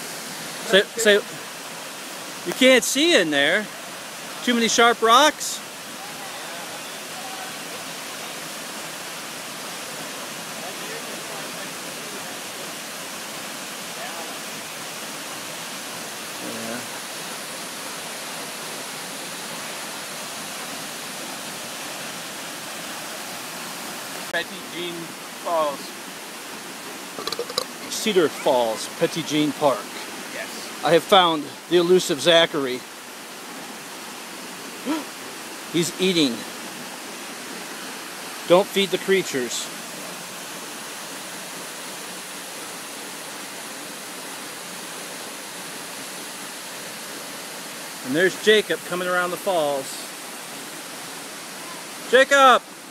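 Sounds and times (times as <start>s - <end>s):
waterfall rushing: 0.0s - 52.9s.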